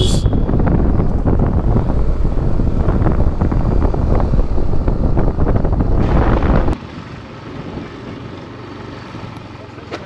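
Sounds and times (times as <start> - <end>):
wind buffeting microphone: 0.0 - 6.8.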